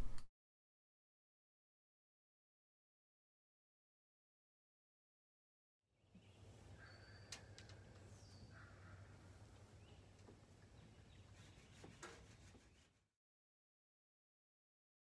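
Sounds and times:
falling bird chirp: 0:06.2 - 0:12.1
soft clicks: 0:07.3 - 0:08.1.

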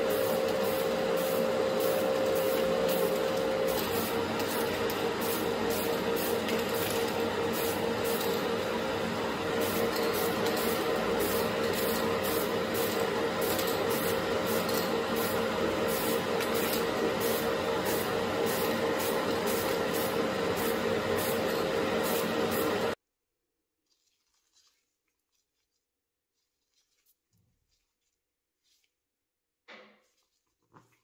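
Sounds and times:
spray paint hissing: 0:00.0 - 0:08.6, 0:09.6 - 0:22.9
extraction fan hum: 0:00.0 - 0:23.0.

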